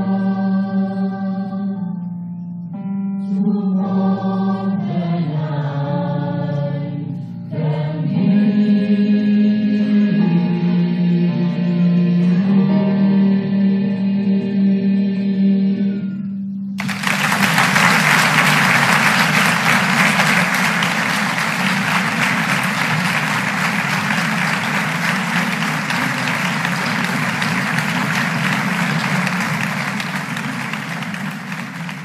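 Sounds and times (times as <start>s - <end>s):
audience applauding: 16.8s - 32.0s.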